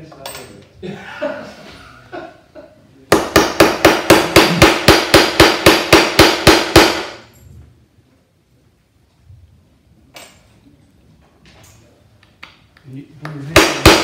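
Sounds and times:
mallet striking metal caul: 3.1s - 7.3s, 13.6s - 14.0s.

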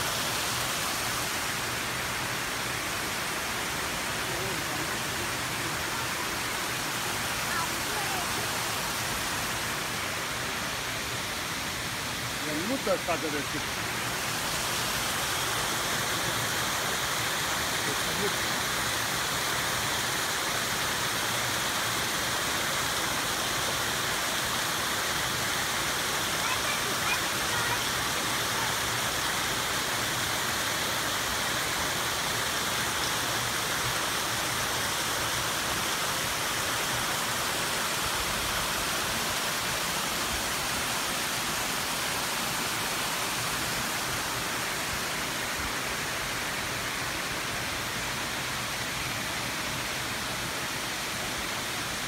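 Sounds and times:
waterfall pouring into pool: 0.0s - 52.0s.

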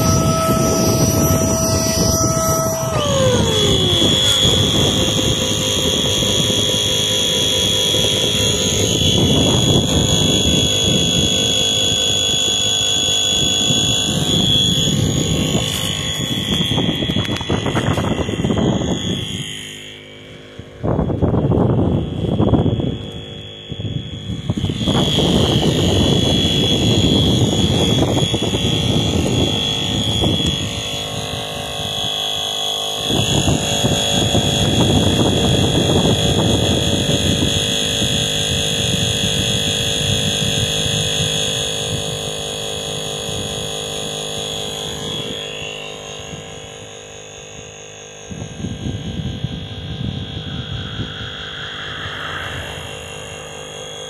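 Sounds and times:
electric pump whining: 0.0s - 54.0s
air rushing: 49.4s - 54.0s.

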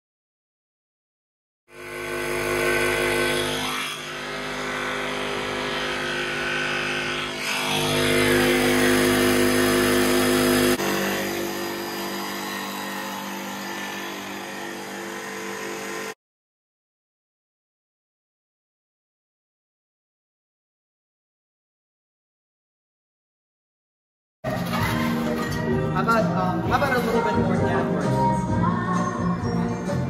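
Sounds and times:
jigsaw cutting: 1.7s - 16.2s.

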